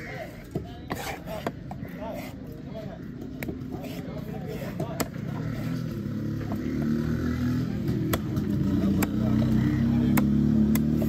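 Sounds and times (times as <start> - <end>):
motor vehicle engine running: 5.3 - 11.0
cleaver chopping fish on wood: 8.0 - 11.0.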